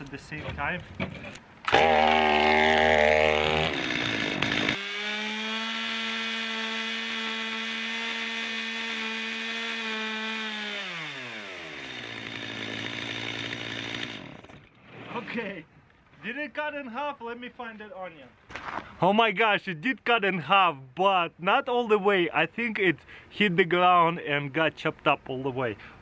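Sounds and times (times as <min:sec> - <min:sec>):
chainsaw running at high revs: 0:01.7 - 0:14.6.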